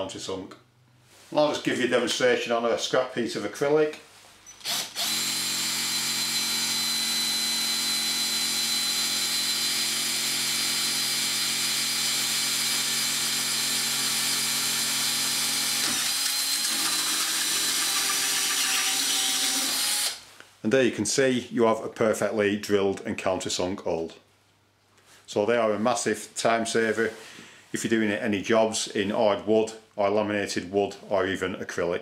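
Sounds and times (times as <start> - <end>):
cordless drill running: 4.5 - 20.2.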